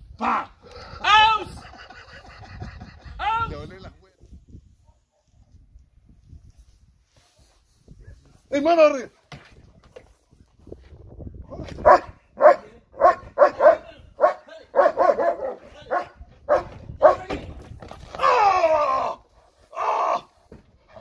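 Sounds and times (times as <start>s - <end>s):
dog barking hard: 11.8s - 17.3s.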